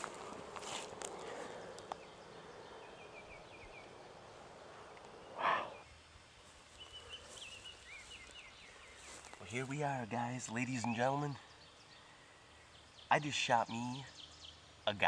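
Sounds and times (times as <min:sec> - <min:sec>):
rustling in grass: 0:00.0 - 0:02.1, 0:05.8 - 0:11.2
faint high bird chirps: 0:05.2 - 0:06.0.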